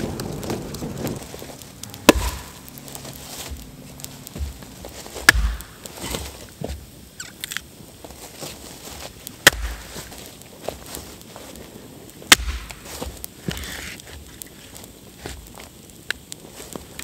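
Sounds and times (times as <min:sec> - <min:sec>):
campfire crackling: 0:00.0 - 0:17.0
axe chopping log: 0:01.9 - 0:02.9, 0:05.2 - 0:06.2, 0:09.4 - 0:09.9, 0:12.3 - 0:12.8.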